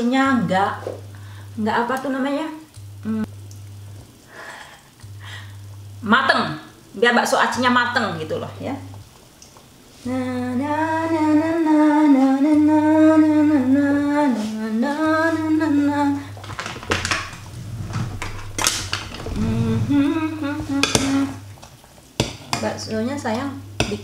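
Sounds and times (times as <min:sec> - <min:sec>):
woman humming: 0:03.0 - 0:03.4, 0:10.0 - 0:16.4, 0:17.8 - 0:21.5.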